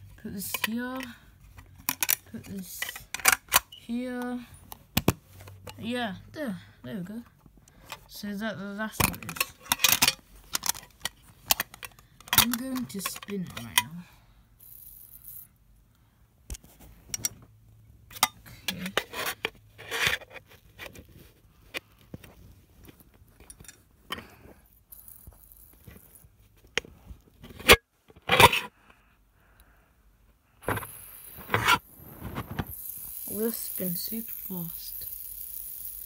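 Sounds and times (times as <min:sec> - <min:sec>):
fidget spinner clicks and rattles: 0:00.3 - 0:06.0, 0:08.8 - 0:15.6, 0:23.4 - 0:26.4, 0:30.6 - 0:36.0.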